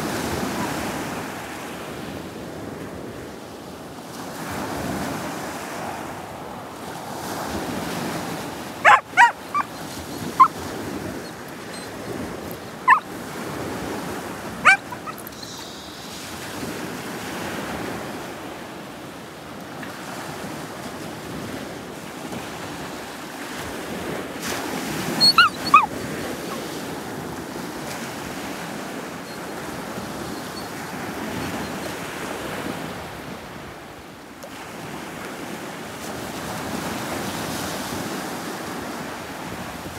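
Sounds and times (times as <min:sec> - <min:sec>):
surf washing on beach: 0:00.0 - 0:39.9
dog barking: 0:08.8 - 0:13.2, 0:14.6 - 0:15.6, 0:25.1 - 0:26.8.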